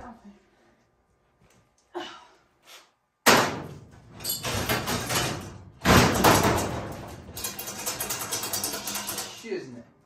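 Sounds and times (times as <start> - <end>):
sheet metal panels banging and rattling: 3.3 - 9.5.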